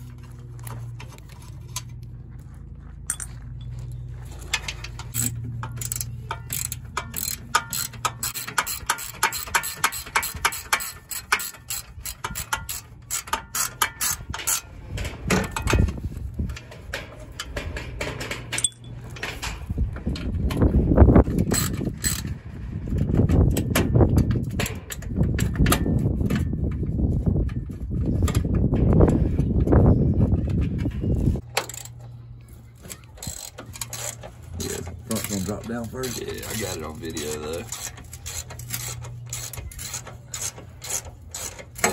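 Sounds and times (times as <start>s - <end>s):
ratchet wrench clicking: 4.9s - 14.6s, 21.3s - 22.3s, 31.4s - 32.0s, 32.8s - 41.9s
low rubbing rumbling noise: 14.7s - 32.8s.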